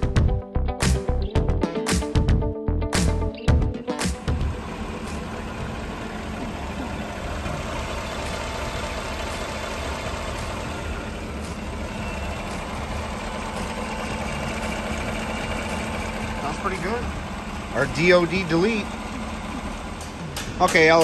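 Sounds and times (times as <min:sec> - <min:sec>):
engine idling: 0:03.0 - 0:21.0.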